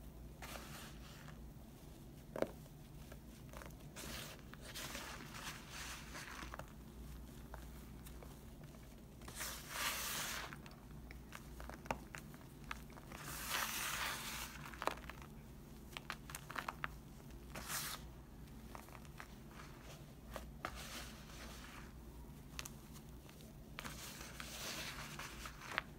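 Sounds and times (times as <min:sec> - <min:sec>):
powder pouring with soft hiss: 0:00.0 - 0:18.1
powder clumps crunching in hand: 0:02.2 - 0:17.8.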